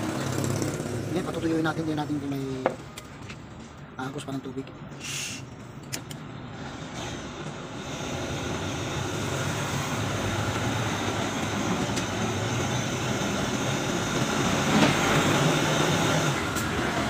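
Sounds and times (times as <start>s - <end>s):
gas torch flame rushing: 4.9s - 5.6s, 6.6s - 17.0s.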